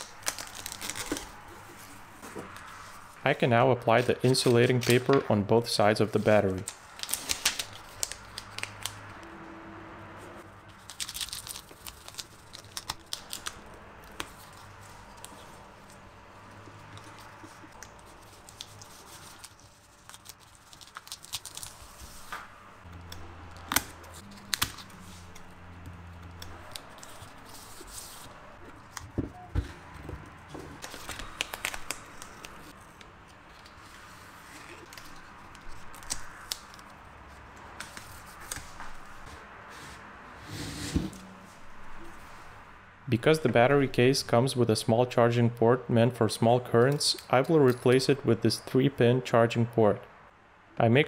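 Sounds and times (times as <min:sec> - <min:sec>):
paper rustling and crackling: 0:00.0 - 0:03.2, 0:03.8 - 0:05.2, 0:06.0 - 0:09.0, 0:10.7 - 0:16.0, 0:16.9 - 0:22.4, 0:26.4 - 0:37.0, 0:37.7 - 0:39.4.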